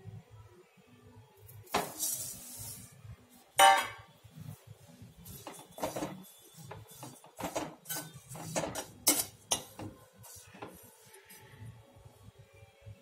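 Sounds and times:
metal spoon scraping metal pan: 1.7 - 2.9, 5.3 - 10.8.

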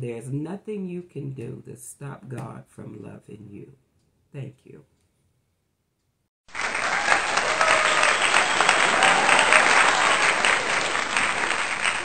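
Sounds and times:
crowd applause: 6.5 - 12.0.

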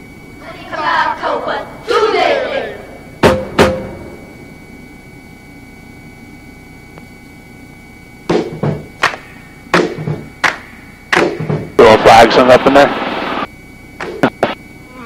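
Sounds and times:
faint humming tones: 0.0 - 15.0
sharp pop: 14.0 - 14.6.

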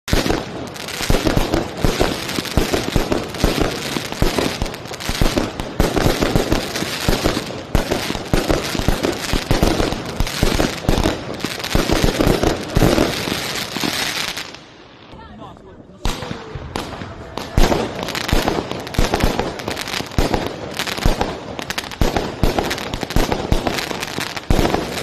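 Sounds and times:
fireworks bangs and crackling: 0.0 - 25.0.

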